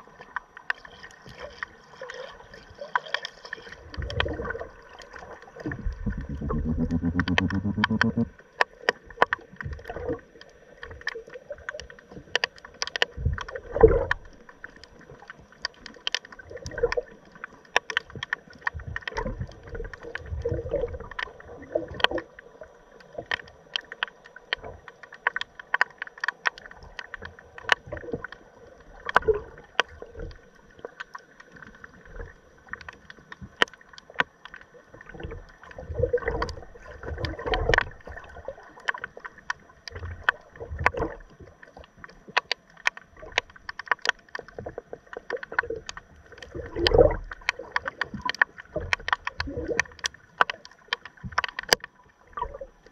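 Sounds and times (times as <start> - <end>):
low rumbling water movement: 0.0 - 52.9
sharp underwater clicks and crackles: 0.0 - 52.9
faint steady hum: 4.3 - 8.8.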